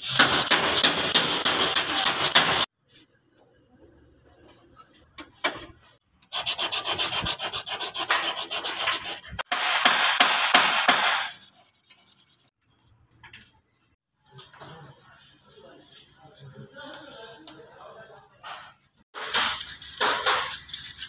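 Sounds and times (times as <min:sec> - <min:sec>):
hand sanding strokes: 0:00.0 - 0:02.7, 0:06.3 - 0:09.8, 0:10.7 - 0:12.6, 0:14.3 - 0:18.3.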